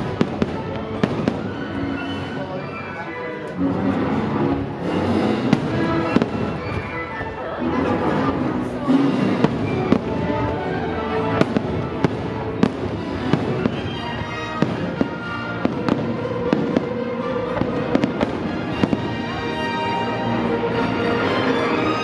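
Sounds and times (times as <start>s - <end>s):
fireworks bursting in bangs: 0.0s - 1.9s, 4.8s - 7.2s, 8.9s - 10.6s, 11.3s - 19.4s
music playing: 0.0s - 22.0s.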